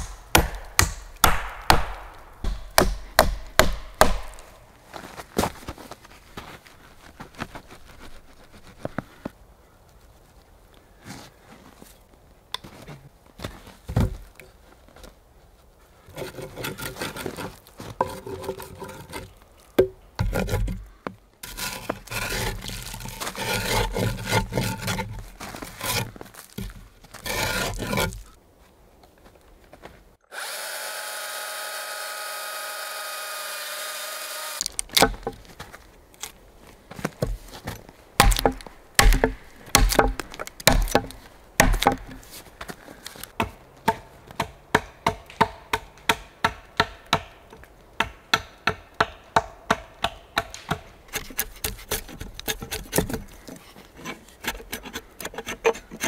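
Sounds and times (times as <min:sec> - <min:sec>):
sharp knocks of chopping wood: 0:00.0 - 0:04.5, 0:38.2 - 0:42.2, 0:43.4 - 0:47.4
saw strokes through wood: 0:27.2 - 0:28.2
power tool whine: 0:30.3 - 0:34.6.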